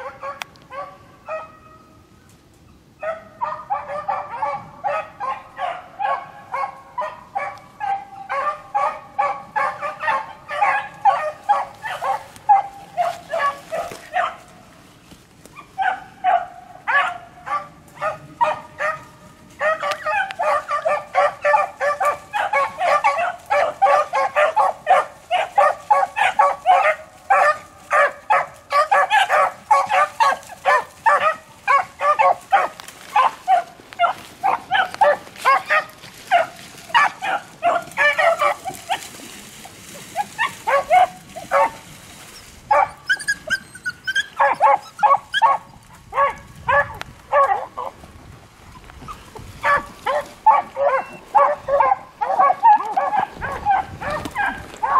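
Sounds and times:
beagles baying: 0:03.0 - 0:14.6, 0:15.4 - 0:41.9, 0:42.6 - 0:48.0, 0:48.8 - 0:54.9.

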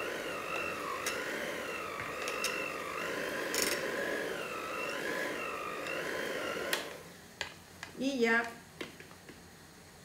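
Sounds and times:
electric mixer whining: 0:00.0 - 0:07.1.

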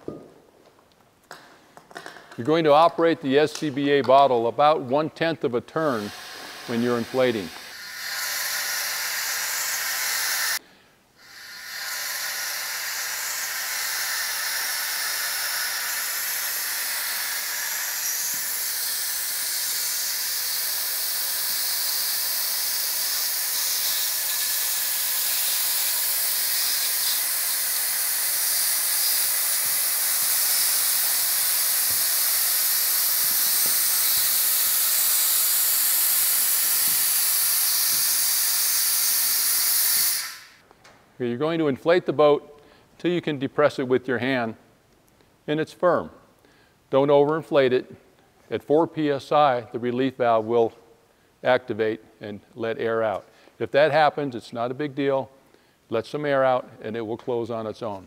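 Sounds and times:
compressed air hissing: 0:05.7 - 0:40.6.

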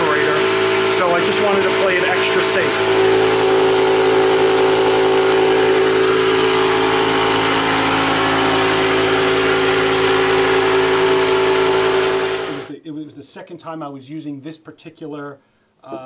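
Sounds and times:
air compressor running: 0:00.0 - 0:12.7.

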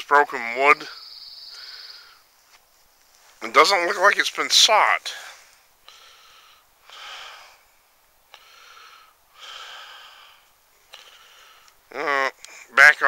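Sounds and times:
person breathing close to microphone: 0:01.5 - 0:02.3, 0:05.1 - 0:11.8.

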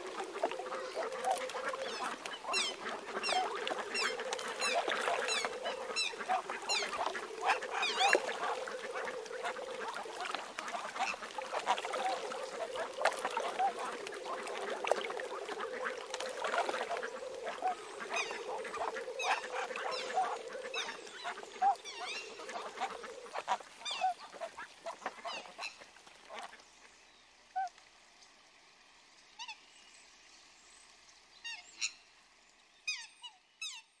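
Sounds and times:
waterfowl calling: 0:00.0 - 0:26.6.

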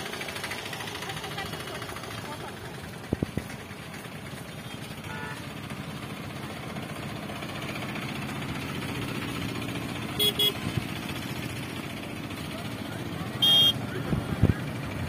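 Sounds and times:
vehicle engine running: 0:00.0 - 0:15.0
horn short toots: 0:10.2 - 0:10.6, 0:13.4 - 0:13.8.

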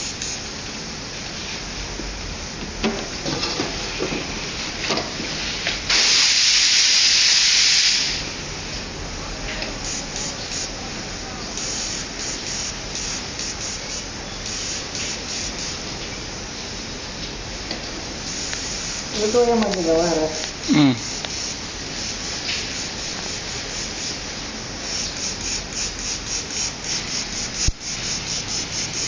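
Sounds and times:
airbrush spraying hiss: 0:00.0 - 0:00.5, 0:05.4 - 0:08.4, 0:09.8 - 0:10.8, 0:11.6 - 0:16.8, 0:18.0 - 0:29.0.

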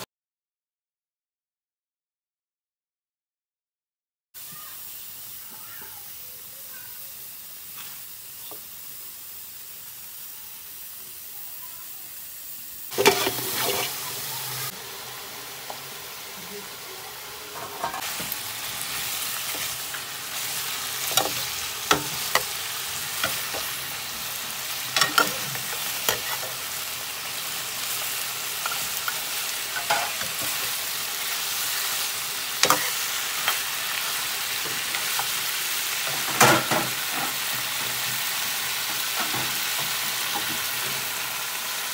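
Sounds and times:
meat sizzling in hot oil: 0:04.4 - 0:41.9
metal spoon scraping a pan: 0:12.9 - 0:14.0, 0:17.5 - 0:26.7, 0:27.8 - 0:30.9, 0:32.6 - 0:33.7.

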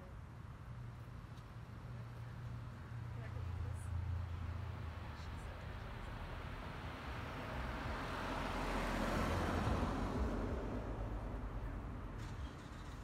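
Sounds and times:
car driving past: 0:06.1 - 0:13.0.

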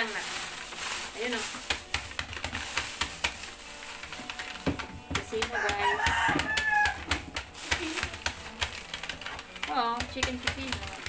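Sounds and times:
groceries rustling and clicking: 0:00.0 - 0:11.0
rooster crowing: 0:05.6 - 0:07.1.

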